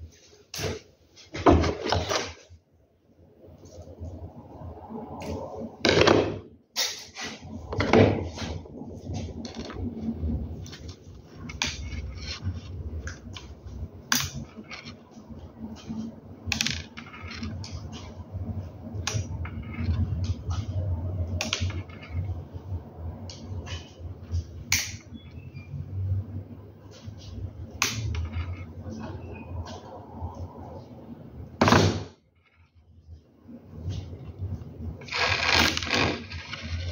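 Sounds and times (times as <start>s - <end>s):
plastic parts clicking and rattling: 35.0s - 36.9s.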